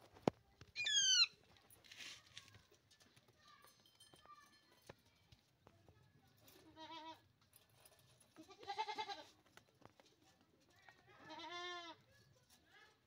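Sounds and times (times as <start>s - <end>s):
young goat bleating: 0.8s - 1.3s, 6.6s - 7.2s, 8.4s - 9.3s, 11.2s - 12.0s.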